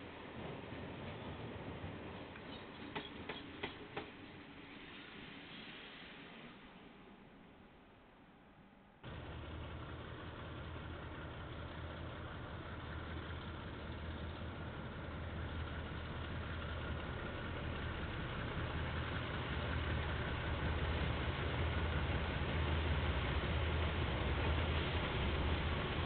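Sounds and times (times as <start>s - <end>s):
diesel locomotive engine humming: 9.0s - 26.0s.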